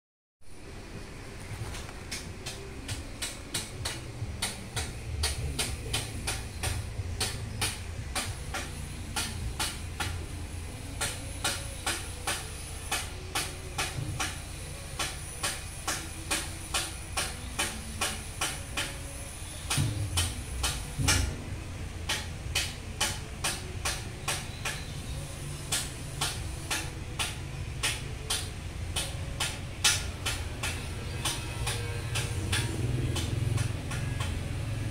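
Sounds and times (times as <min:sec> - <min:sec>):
machine rumbling: 0:00.5 - 0:34.9
repeating sharp clicks: 0:02.1 - 0:10.2, 0:22.0 - 0:34.7.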